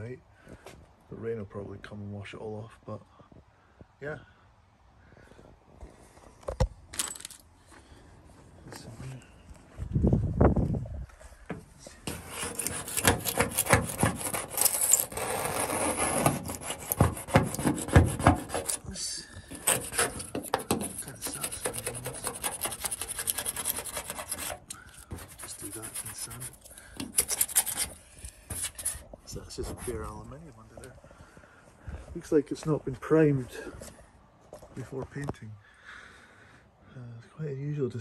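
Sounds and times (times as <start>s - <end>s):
scraper scraping paint off metal: 12.0s - 30.1s.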